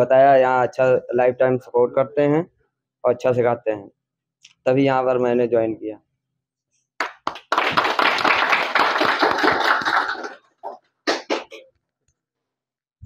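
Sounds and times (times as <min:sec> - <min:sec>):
people applauding: 0:07.0 - 0:11.6.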